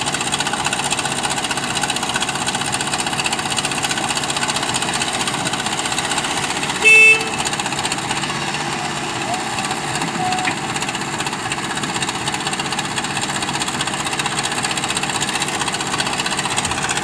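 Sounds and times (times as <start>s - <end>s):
diesel engine running: 0.0s - 17.0s
vehicle horn beep: 6.8s - 7.6s, 10.1s - 10.6s.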